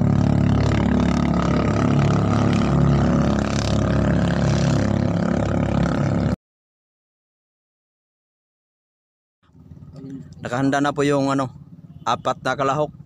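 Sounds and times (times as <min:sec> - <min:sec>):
small boat engine running: 0:00.0 - 0:06.4, 0:09.5 - 0:12.0.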